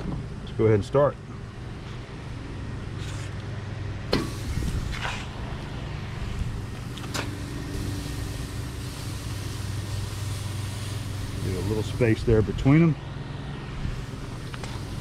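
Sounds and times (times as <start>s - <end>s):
low hum: 1.2s - 15.0s
meat sizzling: 6.6s - 12.1s
steaks clicking on grill grate: 6.7s - 12.0s.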